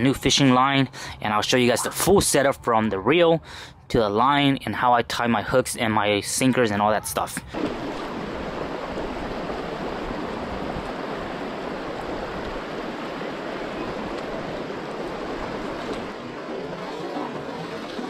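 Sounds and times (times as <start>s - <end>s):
river water rushing over rocks: 7.5s - 18.0s.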